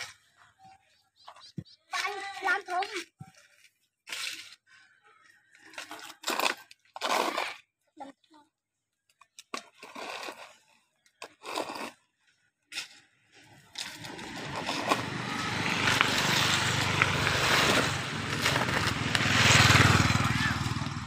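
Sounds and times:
metal trowel scraping gravelly dirt: 0:03.3 - 0:04.8, 0:05.7 - 0:07.7, 0:09.4 - 0:20.8
small engine running: 0:13.8 - 0:21.0.

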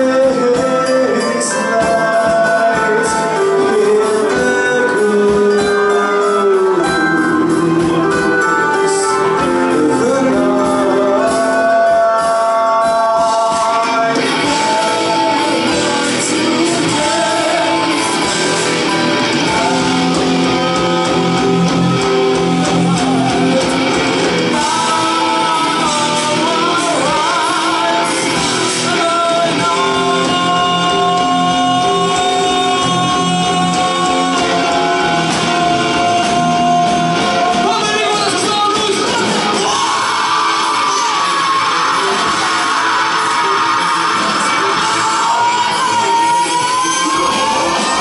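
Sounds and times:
drums: 0:00.0 - 0:48.0
electric guitar: 0:00.0 - 0:48.0
keyboards: 0:00.0 - 0:48.0
person singing: 0:00.0 - 0:48.0.

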